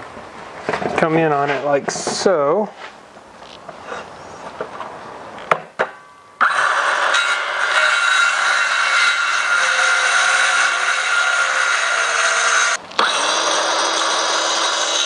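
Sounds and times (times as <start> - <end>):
circular saw cutting wood: 6.4 - 15.0.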